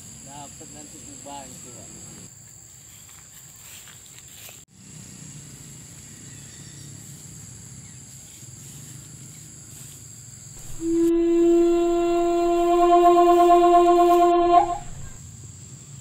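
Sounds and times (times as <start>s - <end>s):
outdoor background noise: 0.0s - 16.0s
high-pitched insect drone: 10.6s - 15.2s.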